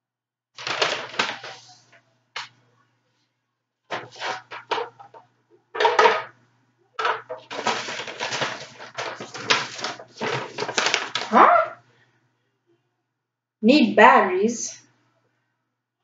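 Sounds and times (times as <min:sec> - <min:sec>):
plastic bag crinkling: 0:00.6 - 0:01.9, 0:03.9 - 0:05.2, 0:07.0 - 0:11.8.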